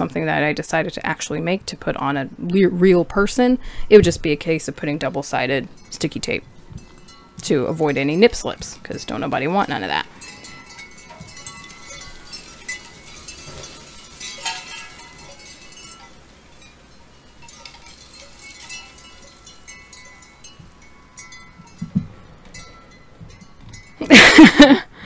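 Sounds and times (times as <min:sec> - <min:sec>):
wind chimes ringing: 0:05.0 - 0:25.0.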